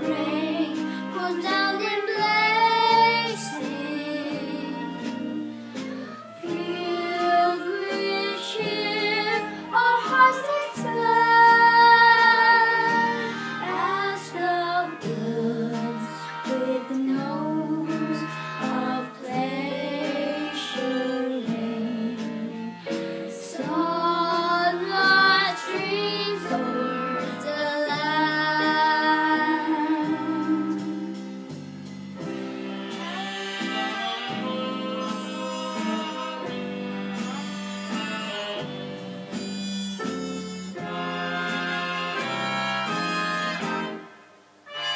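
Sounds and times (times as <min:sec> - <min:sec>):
girl singing a slow song: 0:00.0 - 0:31.4
instrumental accompaniment: 0:00.0 - 0:44.9.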